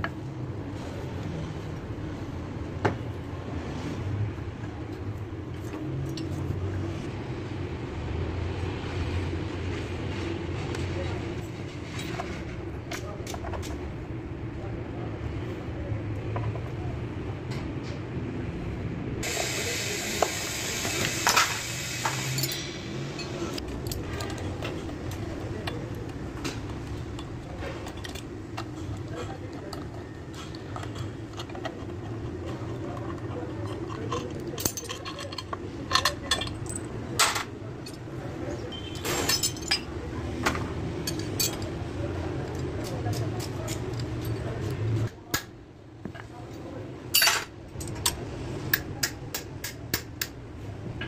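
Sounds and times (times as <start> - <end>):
workshop hum: 0.0 - 51.0
metal tools clinking on engine: 22.2 - 40.0, 41.0 - 41.8, 47.1 - 48.2.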